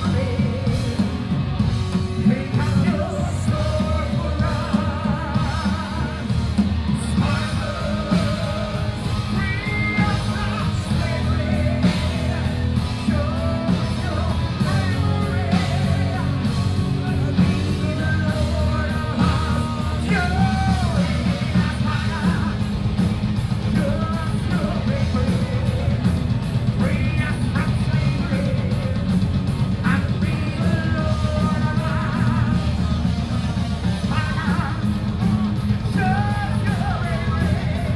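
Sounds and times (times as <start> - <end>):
live metal band playing: 0.0 - 37.9
person singing and shouting: 2.0 - 22.7, 33.8 - 37.9.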